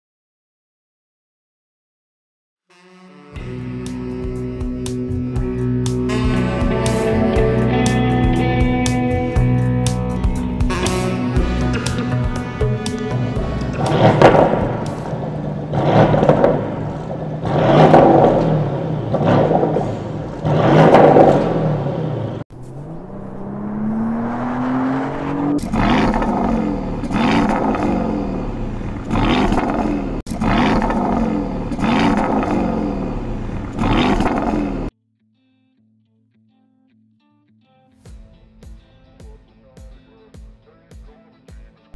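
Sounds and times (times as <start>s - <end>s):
car engine accelerating hard: 11.0s - 34.9s.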